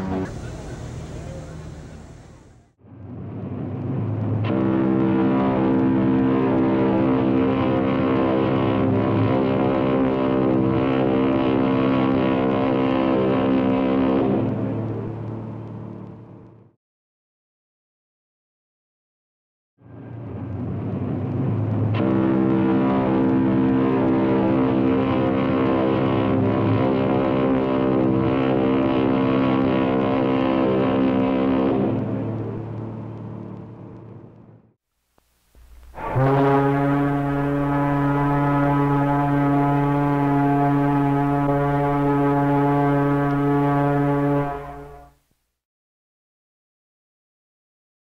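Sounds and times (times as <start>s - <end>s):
ship horn long blast: 0.0s - 2.7s, 4.3s - 15.6s, 21.2s - 33.1s, 35.8s - 45.2s.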